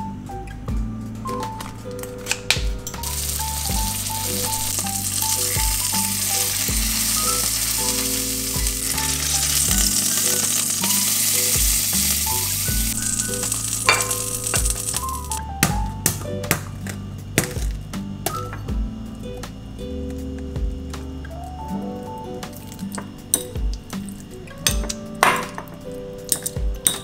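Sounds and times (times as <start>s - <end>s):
soft background music: 0.0s - 27.0s
meat sizzling in a pan: 3.0s - 15.4s.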